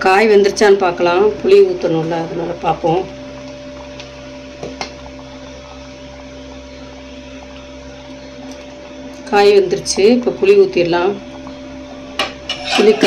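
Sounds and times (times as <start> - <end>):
steady hum: 0.0 - 13.0
ladle clinking against pot: 12.2 - 13.0
ladle stirring in a pot: 12.2 - 13.0.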